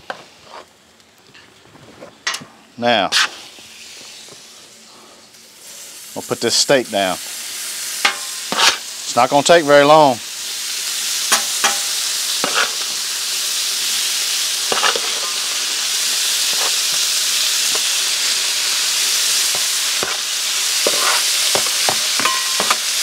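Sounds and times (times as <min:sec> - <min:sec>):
meat sizzling on a griddle: 0:02.8 - 0:23.0
metal spatula tapping on steel: 0:11.3 - 0:11.8, 0:21.6 - 0:22.8.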